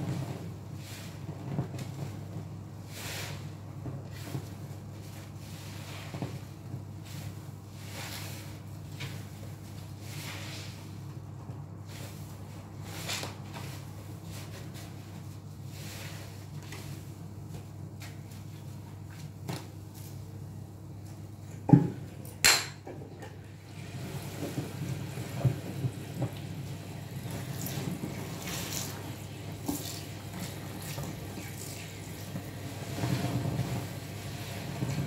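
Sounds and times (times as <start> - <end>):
hands sloshing soapy water: 27.3 - 35.0.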